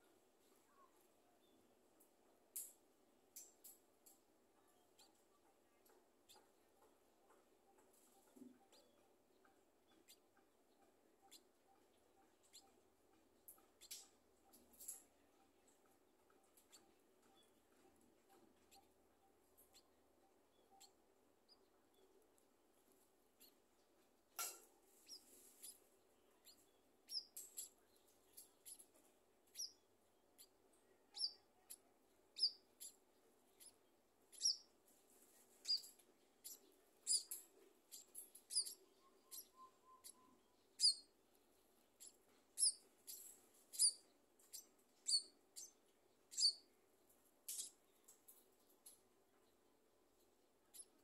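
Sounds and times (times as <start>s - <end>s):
nestlings begging squeaks: 12.4s - 12.8s, 13.6s - 14.1s, 19.6s - 20.0s, 23.3s - 23.7s, 25.0s - 25.8s, 26.4s - 29.8s, 30.4s - 34.8s, 35.6s - 41.1s, 42.0s - 46.7s, 47.5s - 47.8s, 50.7s - 51.0s.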